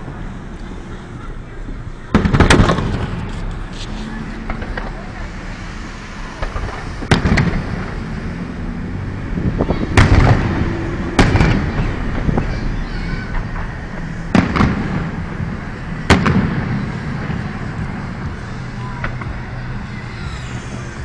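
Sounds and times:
fireworks exploding: 0.0 - 8.9, 9.7 - 21.0.

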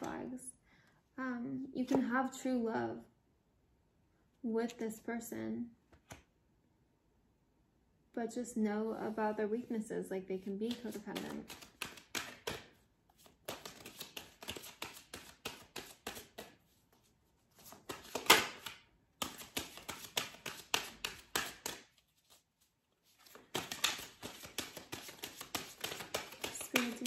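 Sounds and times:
cards being shuffled: 10.7 - 27.0.

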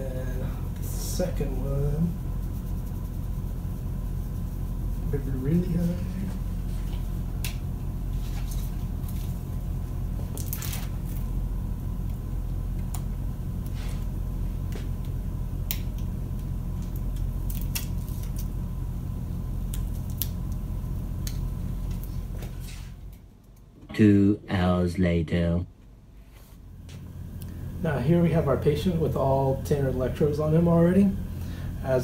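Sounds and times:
steady low hum: 0.0 - 32.0
electrode pads crinkling and clicking: 14.6 - 18.6, 19.6 - 23.7.

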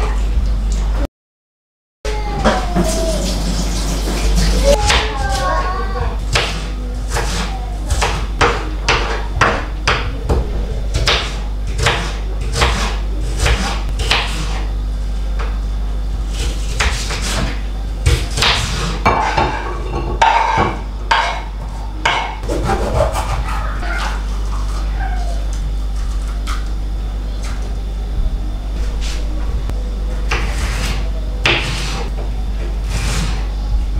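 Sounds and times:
knife chopping on wooden board: 6.3 - 14.6, 16.3 - 19.6, 30.3 - 32.0
pieces scraping across board: 30.3 - 32.1, 32.8 - 33.5.

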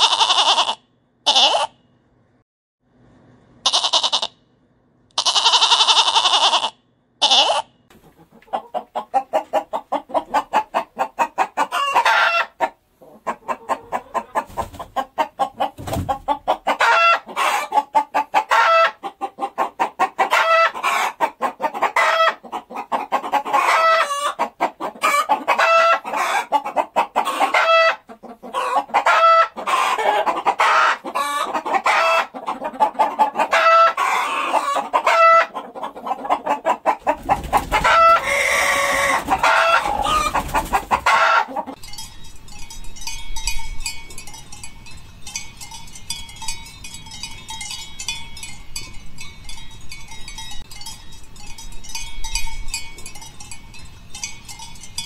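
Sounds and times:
hen drawn-out call: 0.0 - 1.8, 3.6 - 4.4, 5.2 - 7.7, 37.7 - 41.8
hens clucking: 0.0 - 1.8, 3.6 - 4.4, 5.2 - 41.8.

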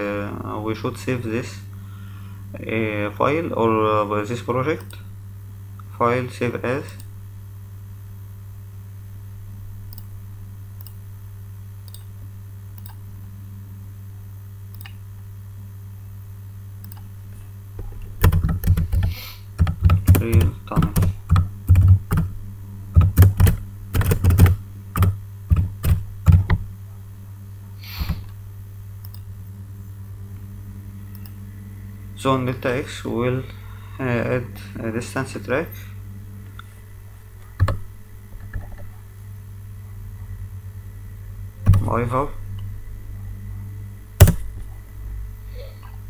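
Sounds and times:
low electrical hum: 0.0 - 46.0
typing on computer keyboard: 18.2 - 22.3, 23.0 - 26.6.

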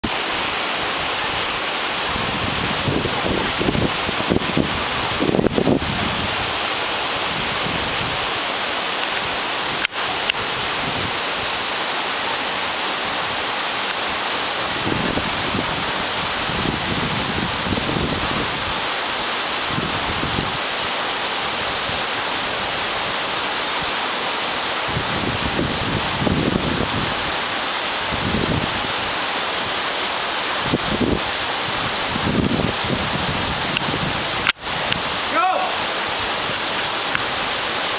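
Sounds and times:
waterfall rushing: 0.0 - 37.9
wind buffeting microphone: 2.1 - 6.6, 14.7 - 18.8, 24.9 - 27.2, 30.6 - 35.2.

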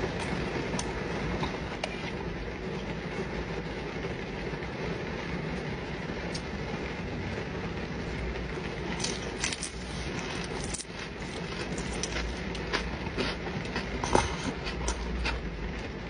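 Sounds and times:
rain heard inside a car: 0.0 - 16.0
sharp clicks and crackles: 5.5 - 6.8, 8.1 - 15.9.

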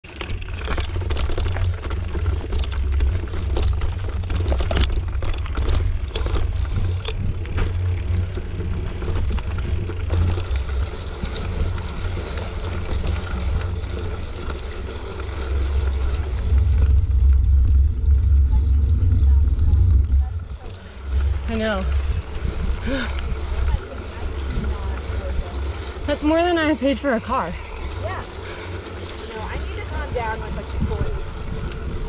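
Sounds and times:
bike rattles and knocks: 0.0 - 32.0
wind buffeting microphone: 15.7 - 32.0.

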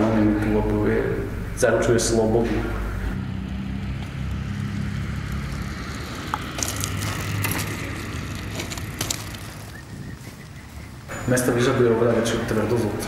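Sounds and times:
steady low street rumble: 0.0 - 13.0
crackling clicks: 5.2 - 10.6.

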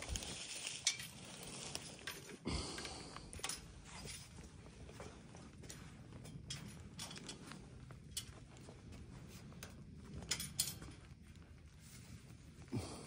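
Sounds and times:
rustling and handling noise: 0.0 - 13.0
low steady rumble: 2.8 - 13.0.

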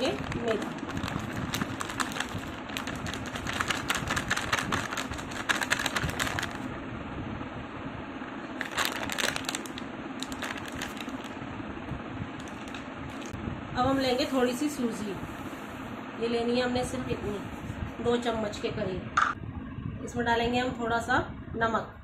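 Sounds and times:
plastic packet crinkling: 0.0 - 6.7, 8.6 - 11.4, 12.4 - 13.4.

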